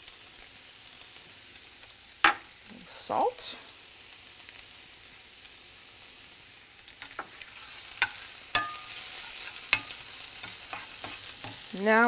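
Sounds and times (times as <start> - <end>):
onion sizzling in butter: 0.0 - 12.0
spatula stirring: 7.0 - 11.8.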